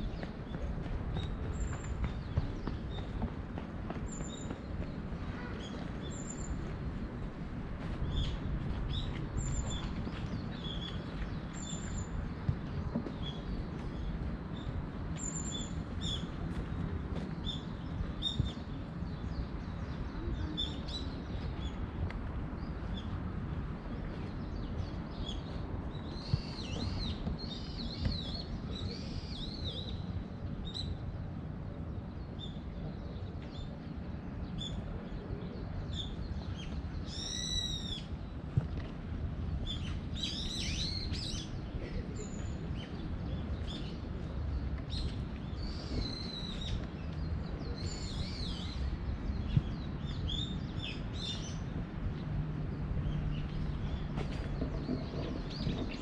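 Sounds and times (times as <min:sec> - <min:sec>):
small birds chirping: 0:00.0 - 0:07.3, 0:22.6 - 0:31.1.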